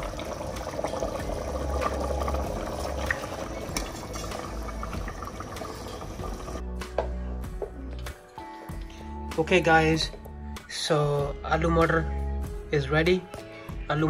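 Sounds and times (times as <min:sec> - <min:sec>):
curry bubbling in a pot: 0:00.0 - 0:06.6.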